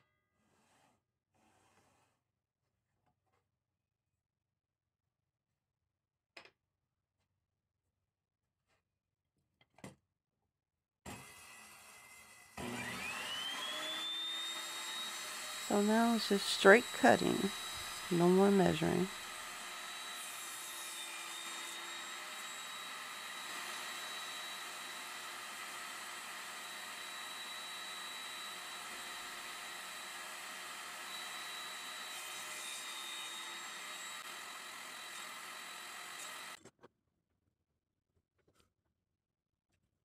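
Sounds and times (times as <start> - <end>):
table saw whining: 11.1 - 36.6.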